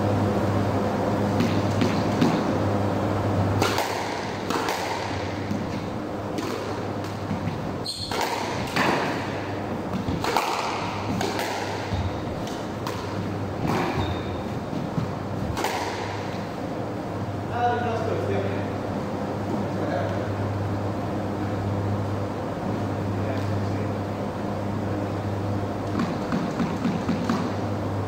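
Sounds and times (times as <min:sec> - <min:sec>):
squash ball hitting rackets and walls: 0:01.3 - 0:02.6, 0:03.5 - 0:16.7, 0:25.8 - 0:27.7
shoes squeaking on wooden floor: 0:07.8 - 0:08.1, 0:13.8 - 0:15.2.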